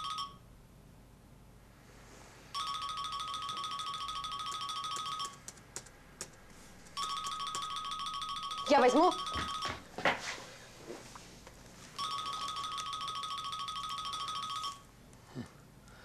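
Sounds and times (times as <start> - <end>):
phone ringtone melody: 0.0 - 0.4, 2.5 - 5.4, 7.0 - 9.9, 11.9 - 14.9.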